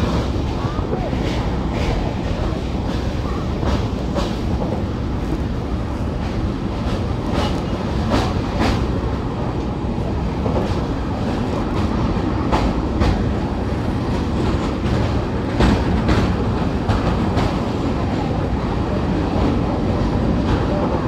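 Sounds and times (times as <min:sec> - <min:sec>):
clickety-clack of rails: 0:00.0 - 0:21.0
train wheels rumbling: 0:00.0 - 0:21.0.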